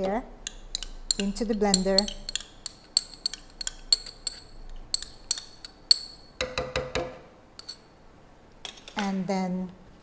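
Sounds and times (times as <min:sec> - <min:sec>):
metal spoon clinking on cup: 0:00.4 - 0:06.5, 0:07.6 - 0:07.9
dull spoon knocks: 0:06.4 - 0:07.2.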